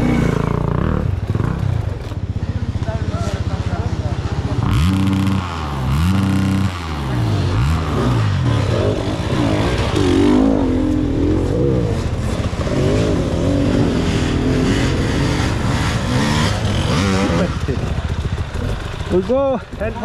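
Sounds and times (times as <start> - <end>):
motorcycle passing by: 0.0 - 20.0
motorcycles revving: 0.0 - 20.0.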